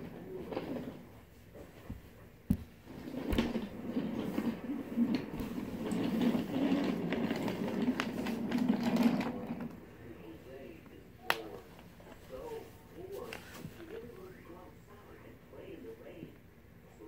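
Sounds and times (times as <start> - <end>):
toy train rumbling on track: 3.0 - 9.9.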